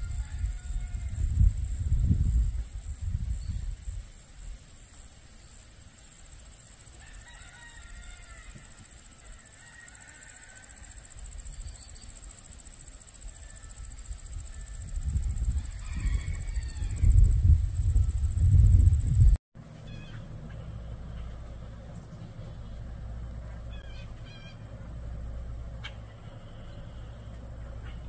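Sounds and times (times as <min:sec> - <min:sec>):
rooster crowing: 0:00.0 - 0:01.4, 0:07.0 - 0:11.3, 0:13.2 - 0:17.5
wind buffeting microphone: 0:00.0 - 0:04.2, 0:14.0 - 0:19.4
insects droning: 0:00.0 - 0:28.0.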